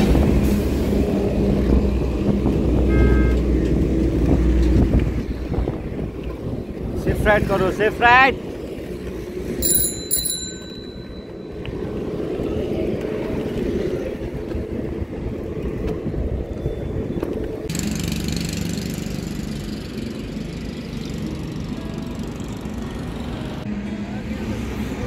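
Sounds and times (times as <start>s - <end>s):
wind rumble: 0.0s - 17.7s
road traffic: 0.0s - 25.0s
bicycle bell ringing: 9.6s - 11.7s.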